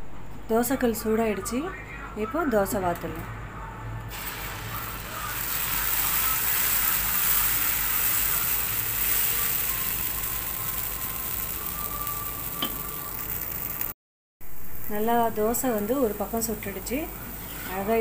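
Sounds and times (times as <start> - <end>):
batter sizzling on a griddle: 4.1 - 14.0, 14.8 - 18.0.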